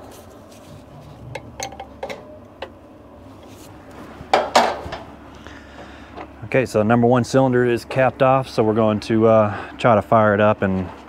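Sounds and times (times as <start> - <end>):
metal clatter: 1.2 - 2.3.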